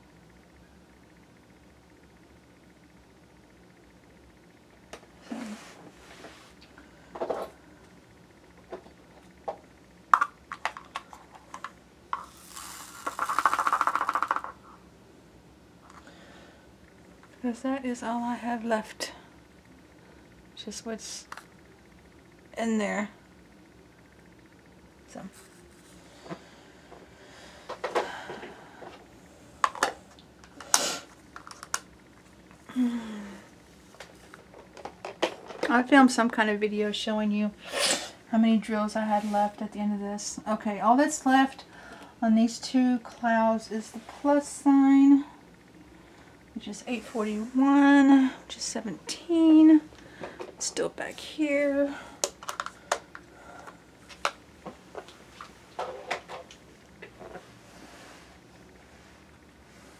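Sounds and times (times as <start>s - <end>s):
plastic tools clicking: 52.2s - 53.1s.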